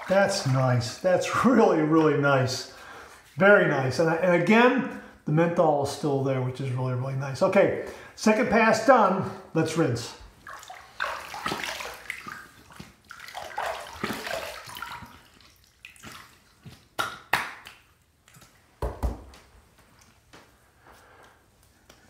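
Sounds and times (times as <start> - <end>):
water splashing onto face: 10.4 - 18.5.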